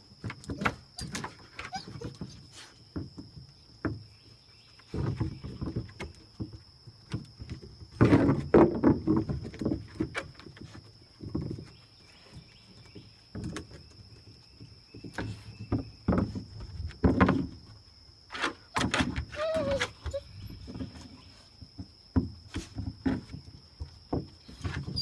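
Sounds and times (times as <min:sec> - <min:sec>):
puppy paws scuffing wooden deck: 0:00.1 - 0:25.0.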